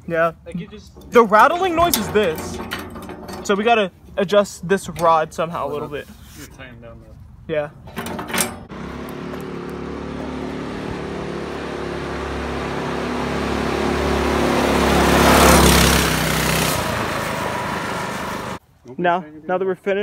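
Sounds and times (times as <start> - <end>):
go-kart engine driving past: 8.7 - 18.6.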